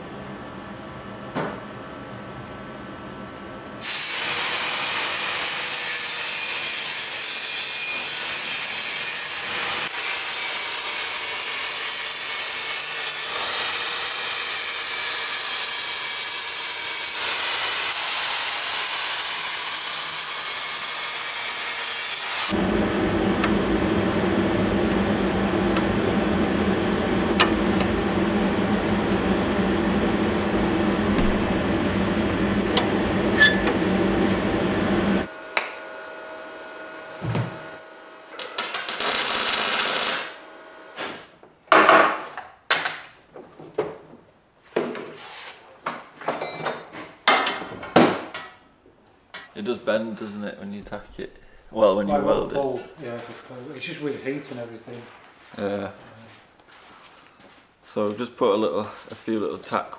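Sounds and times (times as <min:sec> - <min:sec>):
angle grinder grinding steel: 0:22.3 - 0:35.3
low steady motor hum: 0:22.6 - 0:35.3.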